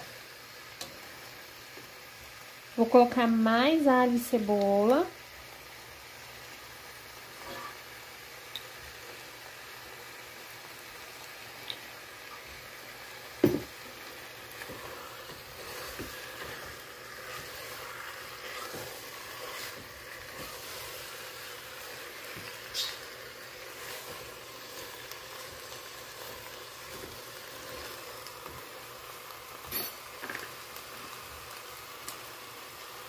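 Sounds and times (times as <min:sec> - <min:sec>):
chicken frying in oil: 0:00.0 - 0:33.0
spatula stirring in pot: 0:13.7 - 0:28.7.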